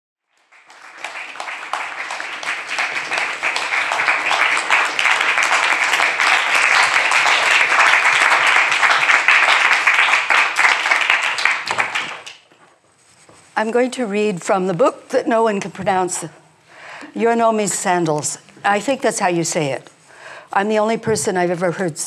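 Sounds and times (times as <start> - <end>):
audience applauding: 0.3 - 12.5.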